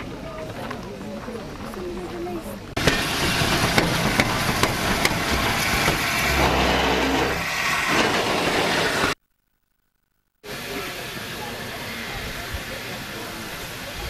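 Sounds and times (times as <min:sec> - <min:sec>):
steam hissing: 0:02.8 - 0:09.2, 0:10.4 - 0:14.0.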